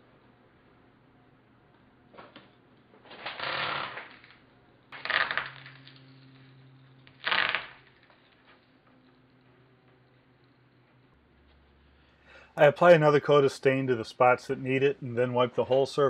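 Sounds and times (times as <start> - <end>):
masking tape peeling off roll: 3.1 - 8.5.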